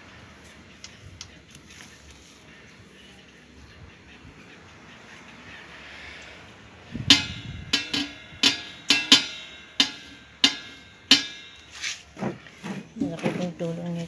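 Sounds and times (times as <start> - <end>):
metal wire guard clinking: 7.1 - 12.1.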